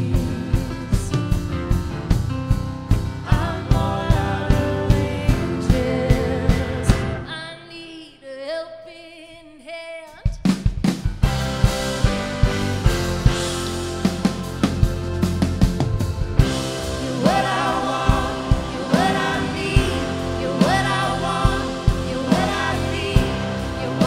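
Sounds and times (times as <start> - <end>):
woman singing: 0.0 - 1.4, 3.2 - 10.4, 17.0 - 24.0
live band playing: 0.0 - 7.4, 10.4 - 24.0
drums: 0.0 - 7.8, 9.5 - 24.0.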